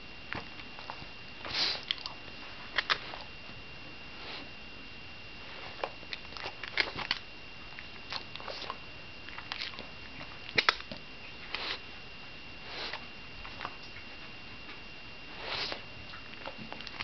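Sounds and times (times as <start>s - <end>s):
dog sniffing: 1.4s - 2.0s, 4.2s - 4.5s, 11.4s - 11.8s, 12.6s - 13.1s, 15.3s - 15.8s.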